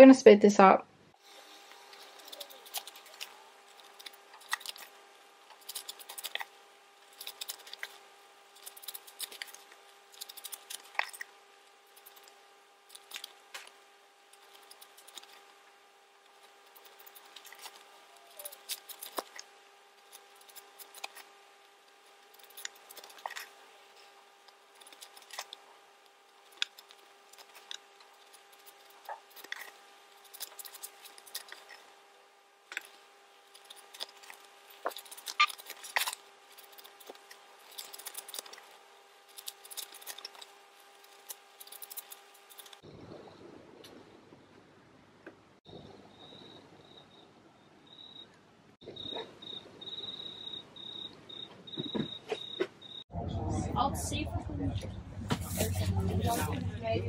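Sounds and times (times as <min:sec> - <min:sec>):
faint steady hum: 0:00.0 - 0:57.0
fabric rustling and swishing: 0:55.2 - 0:56.7.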